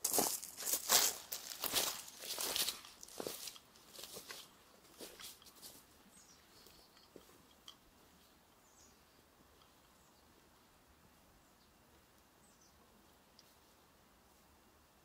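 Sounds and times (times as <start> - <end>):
footstep on leaf litter: 0.0 - 5.8.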